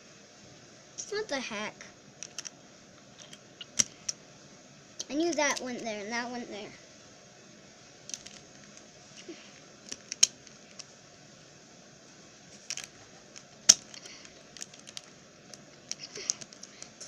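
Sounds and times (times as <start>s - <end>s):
plastic puzzle cube clicking: 2.2s - 2.5s, 9.9s - 10.9s, 12.7s - 15.1s, 15.9s - 17.0s.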